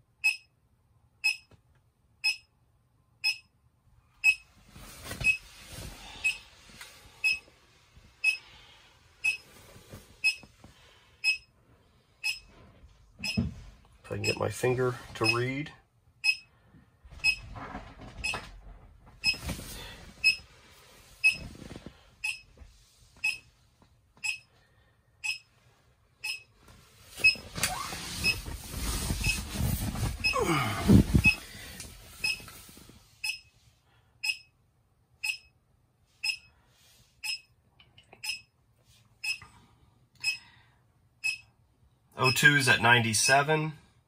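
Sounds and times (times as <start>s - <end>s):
short electronic beeps: 1.2s - 1.5s, 2.2s - 2.5s, 3.2s - 3.5s, 4.2s - 4.4s, 7.2s - 7.4s, 9.2s - 9.4s, 10.2s - 10.4s, 11.2s - 11.5s, 12.2s - 12.4s, 16.2s - 16.5s, 21.2s - 21.4s, 32.2s - 32.4s, 36.2s - 36.5s, 39.2s - 39.4s, 41.2s - 41.5s
vinyl rustling and creaking: 17.4s - 20.2s, 26.6s - 33.0s.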